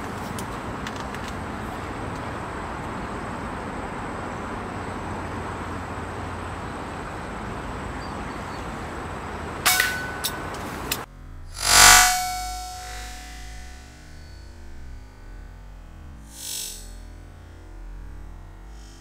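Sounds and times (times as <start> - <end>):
brief ringing tone: 11.1 - 18.2.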